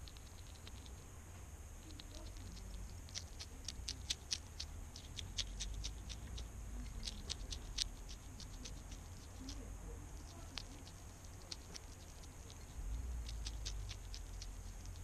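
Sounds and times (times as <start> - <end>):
hedgehog chewing: 0.0 - 15.0.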